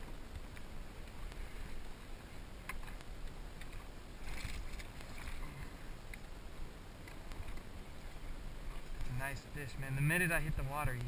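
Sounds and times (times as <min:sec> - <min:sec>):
steady low rumble: 0:00.0 - 0:11.0.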